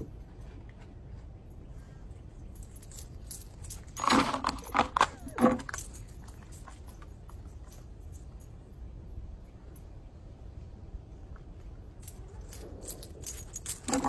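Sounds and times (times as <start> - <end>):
metallic jangling: 2.2 - 8.9, 11.6 - 14.0.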